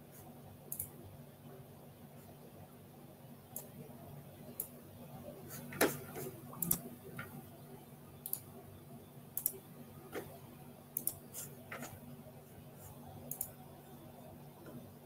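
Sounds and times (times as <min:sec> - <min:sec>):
low steady hum: 0:00.0 - 0:15.0
clicks and taps at a computer: 0:09.4 - 0:10.4, 0:11.0 - 0:12.0, 0:13.2 - 0:13.6.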